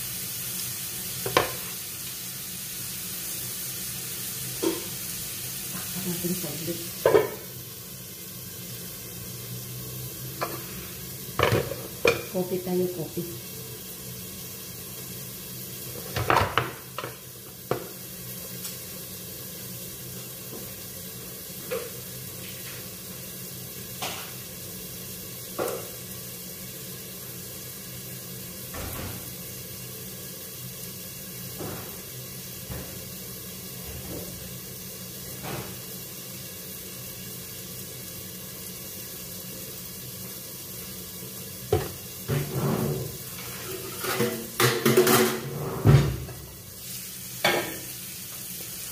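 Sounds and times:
food sizzling in a pan: 0:00.0 - 0:48.9
utensils clattering: 0:42.4 - 0:45.7.

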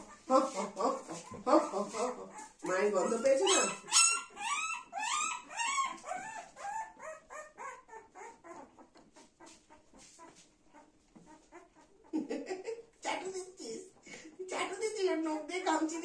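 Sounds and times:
puppy crying in short squeals: 0:03.0 - 0:08.8.

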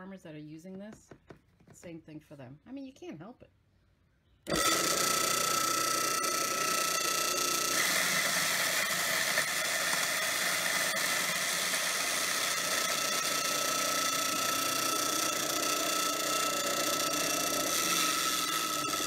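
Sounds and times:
electric grinder whining: 0:04.5 - 0:19.0.

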